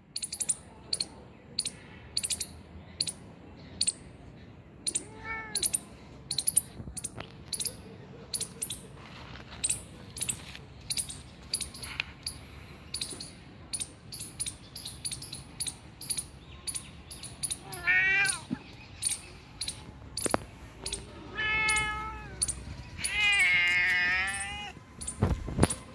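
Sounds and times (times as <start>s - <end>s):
cat meowing: 5.0s - 5.7s, 17.6s - 18.5s, 20.9s - 24.8s.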